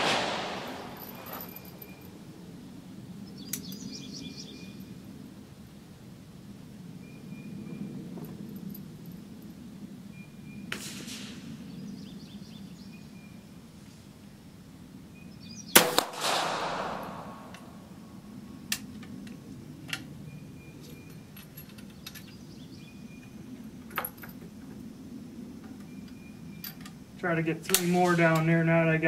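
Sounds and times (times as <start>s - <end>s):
rifle shot echoing: 0.0s - 2.0s, 15.8s - 17.8s
rifle action metallic clicks: 27.7s - 28.0s.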